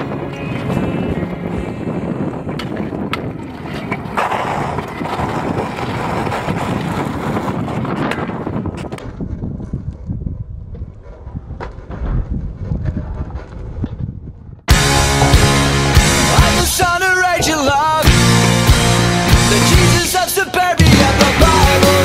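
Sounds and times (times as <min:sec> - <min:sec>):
wind on microphone: 0:00.0 - 0:14.7
scooter wheels rolling on asphalt: 0:00.0 - 0:15.5.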